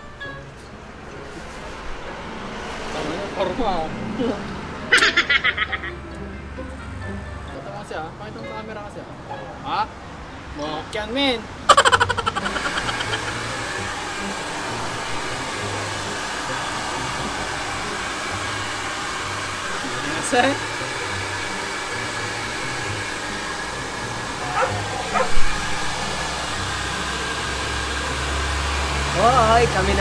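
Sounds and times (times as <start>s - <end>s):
high-pitched cries: 4.9s - 6.0s, 11.7s - 13.4s
hair dryer blowing: 11.6s - 30.0s.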